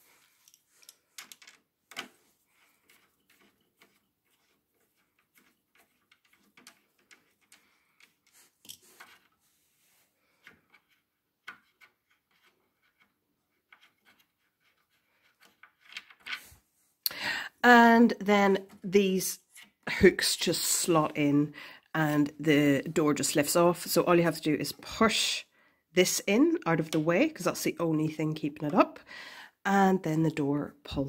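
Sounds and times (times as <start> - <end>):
screwdriver clicks and scrapes: 0.2 - 9.4, 10.4 - 16.6.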